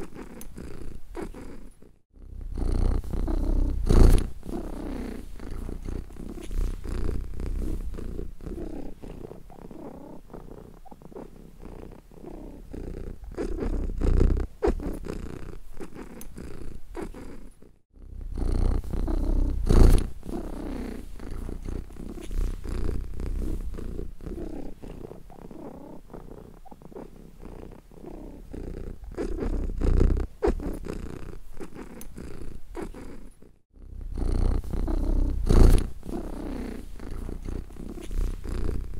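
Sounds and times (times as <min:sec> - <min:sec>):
cat purring: 0:00.0 - 0:38.9.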